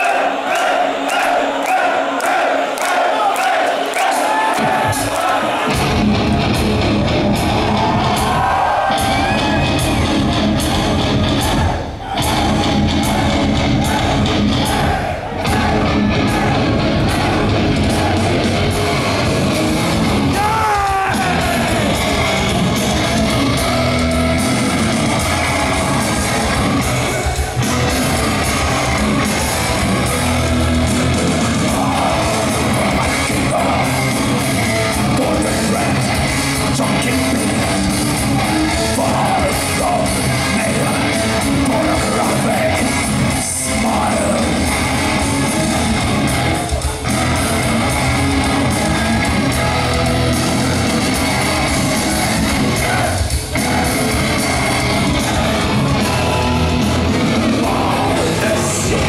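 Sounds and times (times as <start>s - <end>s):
drums: 4.4s - 59.0s
distorted electric guitars: 4.6s - 59.0s
person singing: 12.2s - 59.0s.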